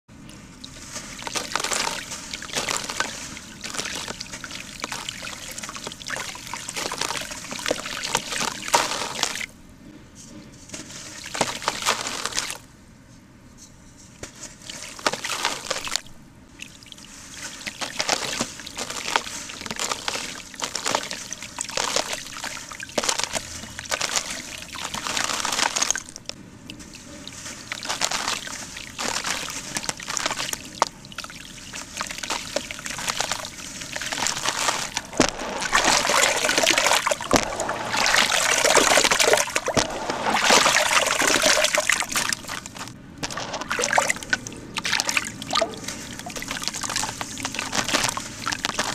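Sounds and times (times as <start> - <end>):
hands sloshing cement in water: 0.3 - 9.6, 10.7 - 12.6, 14.2 - 48.9.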